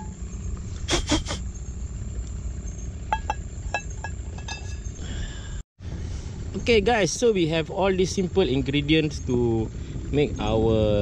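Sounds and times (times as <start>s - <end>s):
steady low hum: 0.0s - 11.0s
metal cookware clinks and scrapes: 3.1s - 4.9s.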